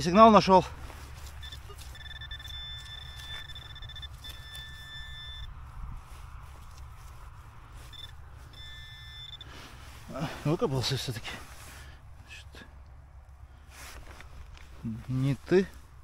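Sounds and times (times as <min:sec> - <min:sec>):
metal detector high beep: 0:01.2 - 0:05.6, 0:07.8 - 0:09.7.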